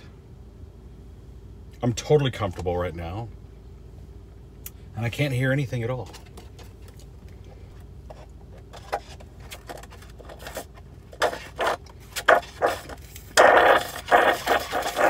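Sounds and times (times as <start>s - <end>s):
scraping and handling noises: 6.0s - 15.0s.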